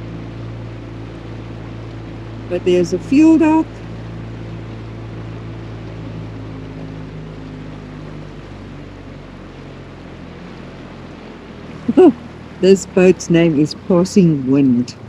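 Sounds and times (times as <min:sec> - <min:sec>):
outboard motor running: 0:00.0 - 0:15.0.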